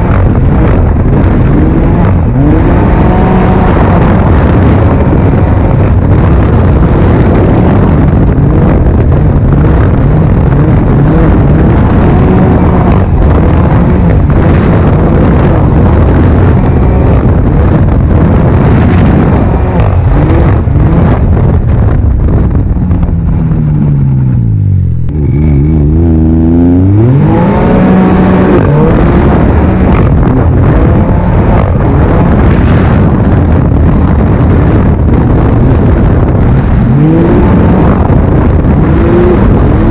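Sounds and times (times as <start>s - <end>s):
snowmobile engine at speed: 0.0s - 39.9s.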